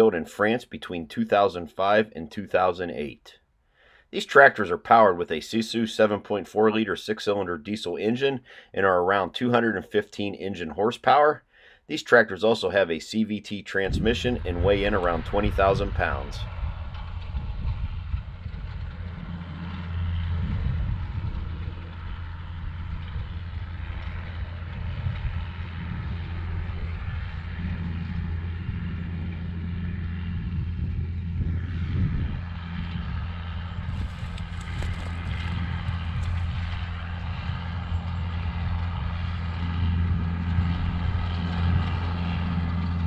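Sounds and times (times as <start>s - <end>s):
tractor diesel engine running: 13.8s - 43.0s.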